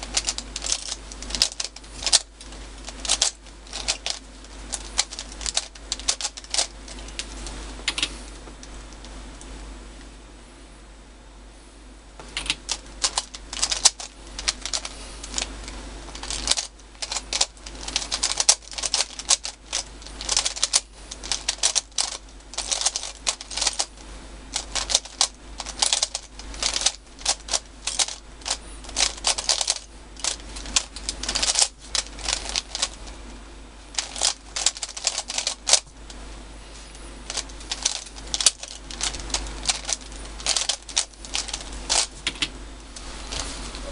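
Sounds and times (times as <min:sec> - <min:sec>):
puzzle cube clicking: 0:03.0 - 0:07.3, 0:16.2 - 0:23.9, 0:24.6 - 0:33.0, 0:37.3 - 0:42.4.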